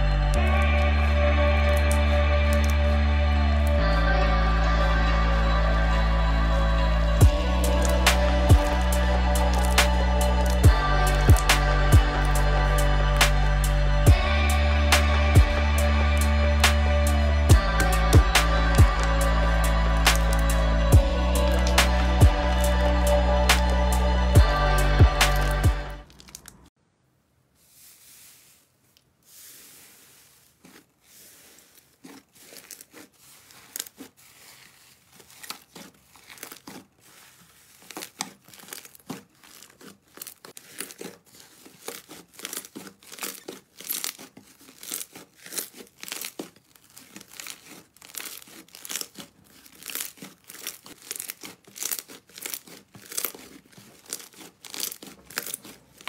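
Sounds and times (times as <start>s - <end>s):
slime crackling and popping: 7.3s - 14.3s, 14.9s - 24.0s, 25.1s - 26.8s, 29.4s - 56.0s.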